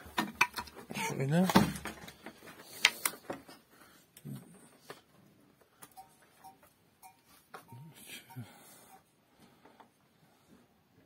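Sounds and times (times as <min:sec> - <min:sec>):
faint short high tones: 0:06.0 - 0:09.0.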